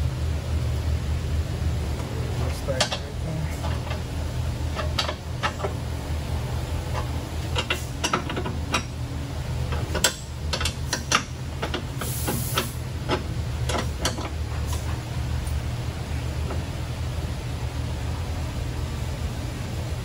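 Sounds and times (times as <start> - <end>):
low shop hum: 0.0 - 20.0
wrench clicking and tapping metal: 2.7 - 4.1, 4.7 - 5.8, 6.9 - 8.9, 9.7 - 14.4.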